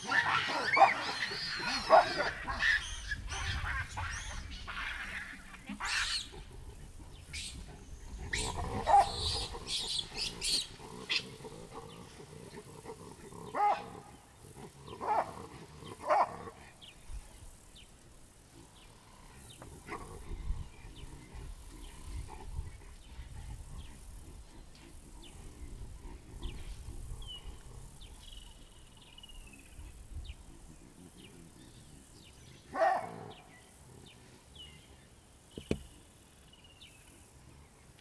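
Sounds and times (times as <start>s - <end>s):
baboons shrill high calls: 0.0s - 6.5s
baboons loud low barks: 0.0s - 17.6s, 29.4s - 35.1s.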